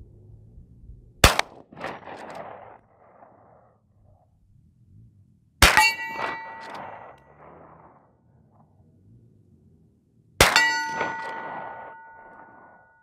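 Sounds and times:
rifle shots with metallic ringing: 1.2 - 3.4, 5.6 - 8.0, 10.4 - 13.0.

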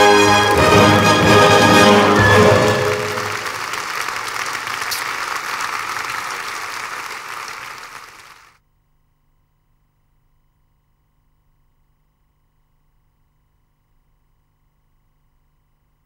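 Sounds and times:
orchestral music: 0.0 - 4.4
audience applauding: 0.0 - 8.6.

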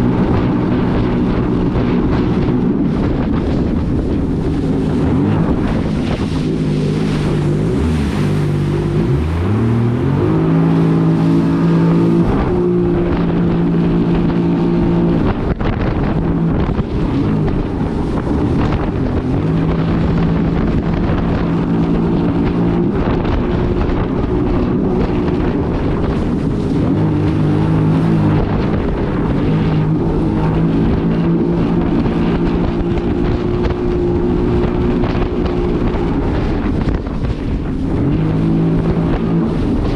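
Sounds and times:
personal watercraft engine running: 0.0 - 39.9
wind buffeting microphone: 0.0 - 39.9.

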